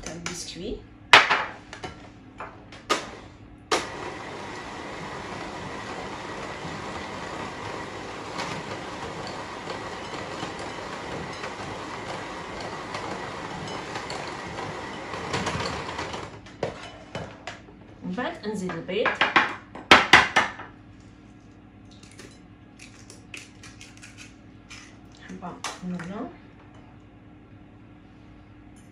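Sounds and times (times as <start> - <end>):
electric hand mixer running: 3.7 - 16.4.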